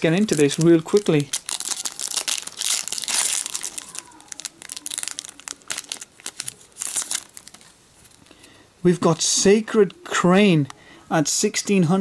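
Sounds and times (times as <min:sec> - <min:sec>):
foil wrapper crinkling: 0:00.0 - 0:08.3.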